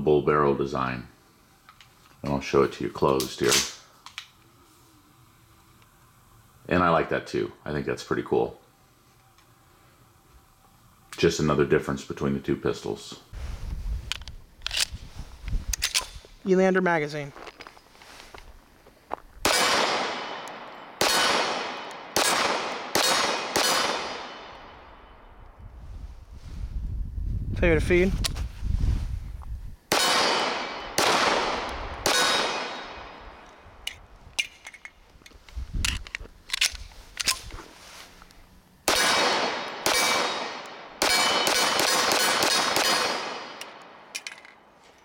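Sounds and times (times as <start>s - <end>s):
pistol shots echoing: 19.4s - 25.1s, 29.9s - 33.4s, 38.9s - 44.1s.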